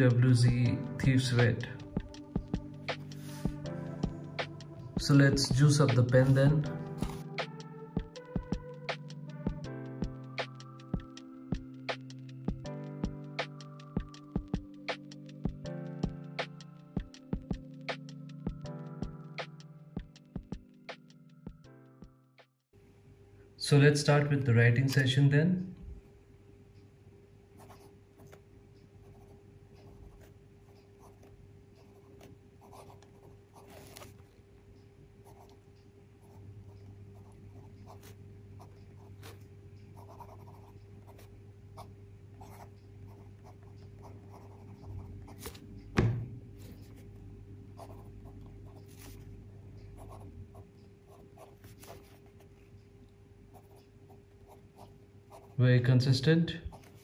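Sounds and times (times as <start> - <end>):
steady low hum: 25.4 - 57.0
fountain pen scratching on paper: 27.6 - 28.4, 29.1 - 34.1, 35.2 - 35.6, 37.2 - 39.4, 40.0 - 41.3, 42.4 - 45.6, 47.8 - 49.2, 50.0 - 52.4, 54.5 - 55.6
sharp knock: 46.0 - 46.5.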